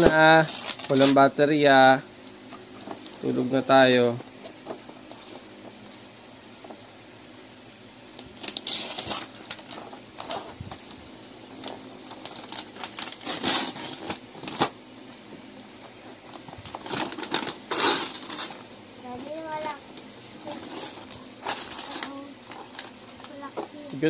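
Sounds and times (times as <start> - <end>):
wrapping paper tearing and crumpling: 0.0 - 1.3, 8.2 - 11.0, 11.6 - 14.8, 15.9 - 19.8, 20.4 - 23.8.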